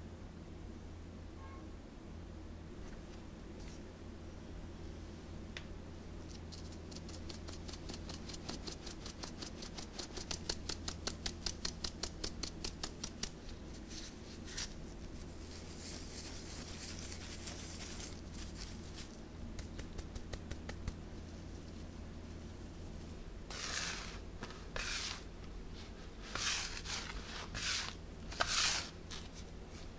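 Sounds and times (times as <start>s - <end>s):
powder sifting hiss: 21.2s - 29.9s.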